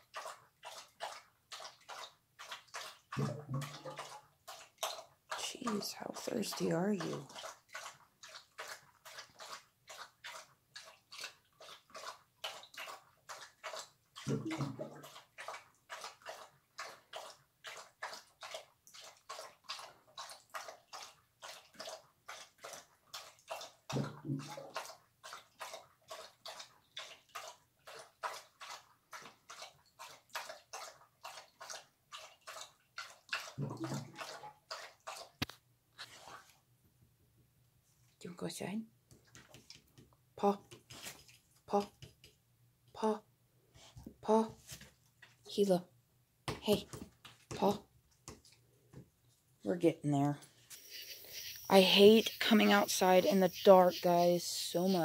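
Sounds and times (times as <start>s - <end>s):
dog lapping water: 0.0s - 36.6s, 50.4s - 55.0s.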